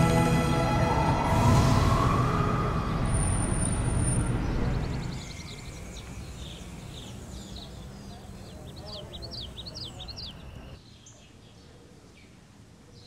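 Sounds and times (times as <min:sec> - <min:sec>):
theme music: 0:00.0 - 0:05.3
rising whoosh: 0:00.0 - 0:06.5
small birds chirping: 0:03.1 - 0:13.0.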